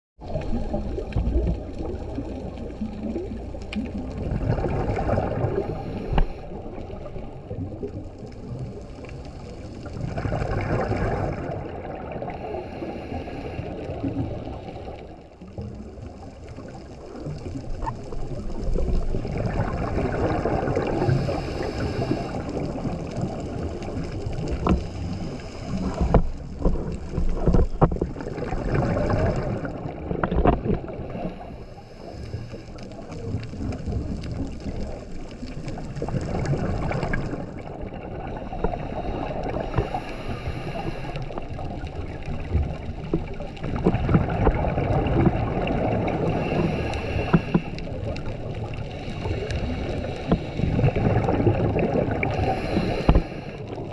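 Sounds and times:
underwater exhaled bubbles gurgling: 0.2s - 53.9s
regulator inhalations: 21.0s - 22.5s, 31.2s - 32.8s, 38.7s - 41.3s, 46.4s - 47.8s, 52.4s - 53.6s.

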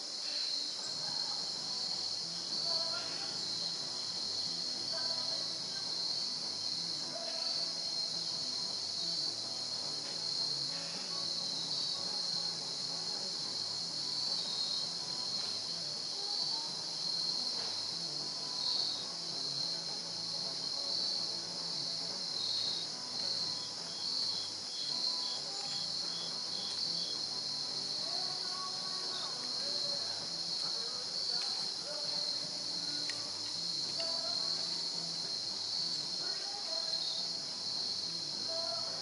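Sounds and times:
high-pitched insect chorus: 0.0s - 39.0s
insect chirps: 0.0s - 39.0s.

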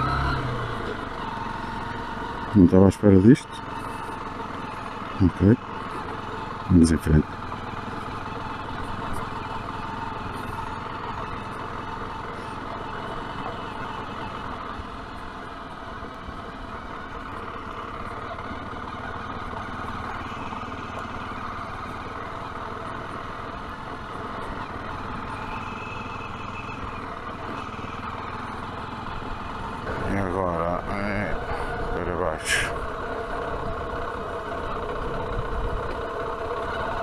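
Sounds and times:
motorcycle engine running: 0.0s - 37.0s
wind rush and road noise: 34.8s - 36.0s.

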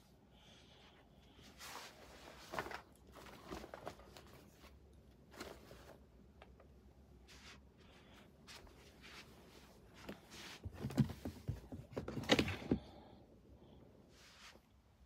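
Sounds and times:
clothes and fabric bag rustling: 1.6s - 6.1s.

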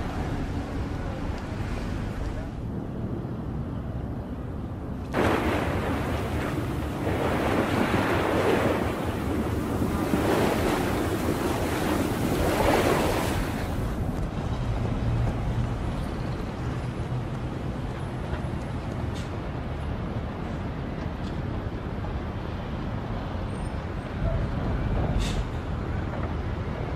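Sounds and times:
water washing in waves: 5.1s - 15.6s.

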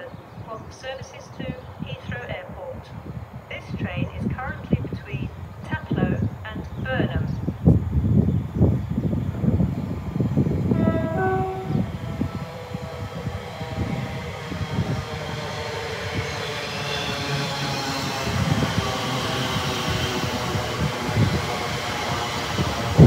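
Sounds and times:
electric train motor whine: 9.1s - 23.0s
two-note train horn: 10.7s - 13.2s.

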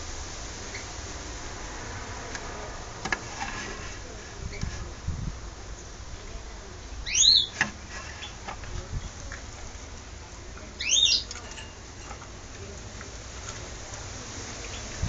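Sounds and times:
finch call: 10.8s - 11.5s.

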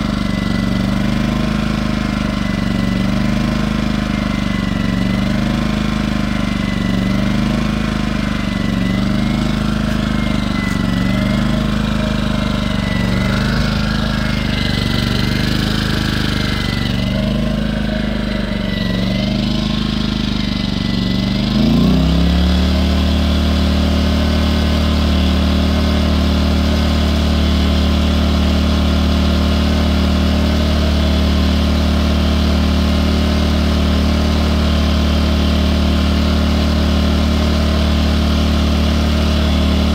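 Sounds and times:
generator engine surging: 0.0s - 39.9s.

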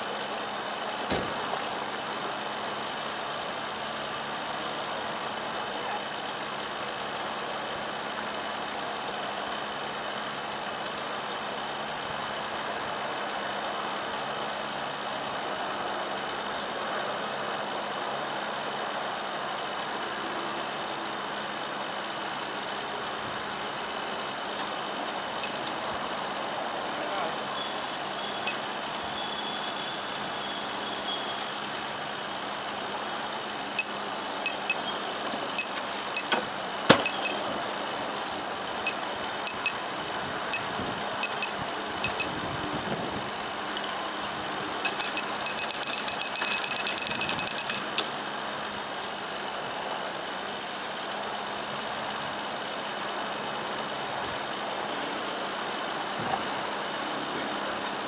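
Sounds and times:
engine hum: 0.0s - 58.0s
ratchet clicking: 25.4s - 25.7s, 33.8s - 34.9s, 35.6s - 37.4s, 38.8s - 39.9s, 40.5s - 42.5s, 44.8s - 48.1s.

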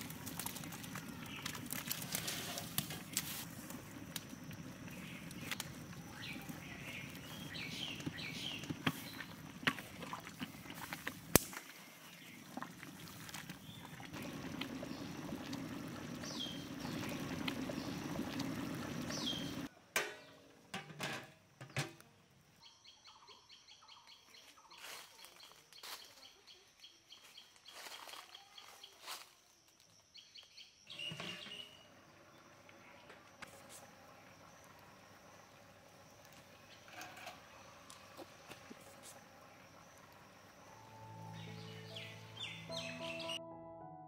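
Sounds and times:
rice boiling and bubbling: 0.0s - 21.9s, 30.9s - 42.7s
quiet outdoor ambience: 0.0s - 43.4s
birds chirping: 2.8s - 11.0s, 11.7s - 19.7s, 30.2s - 43.4s.

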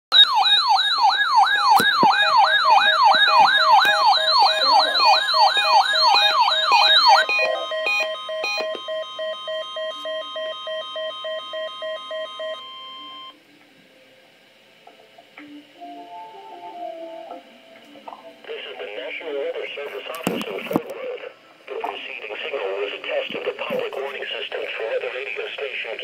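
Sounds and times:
warbling siren: 0.1s - 13.2s
steady warning alarm tone: 0.1s - 13.4s
rapid beeps: 1.1s - 13.4s.

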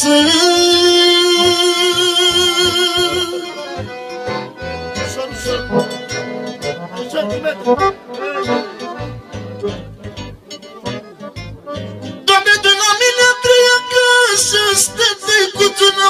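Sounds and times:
man singing a long note: 0.0s - 3.7s, 12.3s - 16.0s
piano accordion melody: 0.0s - 16.0s.

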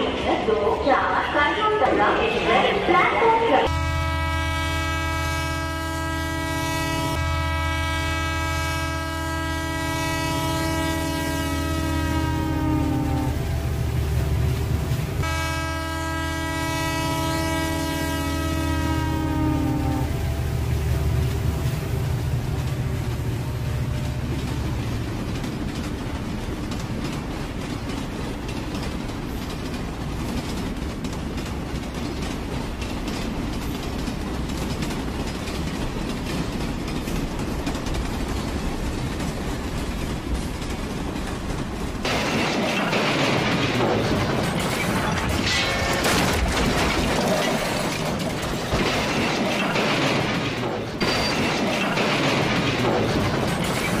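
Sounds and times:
train rumbling on rails: 0.0s - 54.0s
wheels clattering over track: 24.4s - 54.0s.

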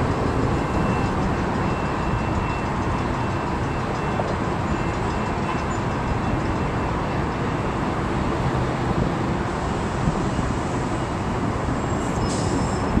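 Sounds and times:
outdoor rumble and hiss: 4.2s - 13.0s
high squeal: 11.8s - 13.0s.

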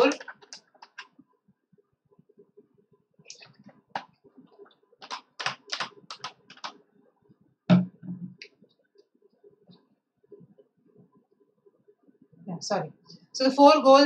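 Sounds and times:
loud thump: 7.7s - 8.3s.

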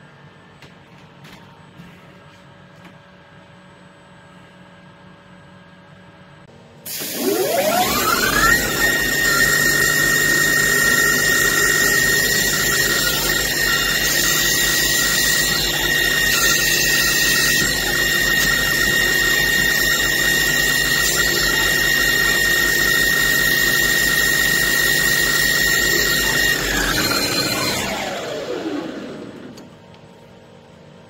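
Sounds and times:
metal cutting noise: 6.9s - 29.6s
lathe spindle whine: 7.1s - 29.8s.

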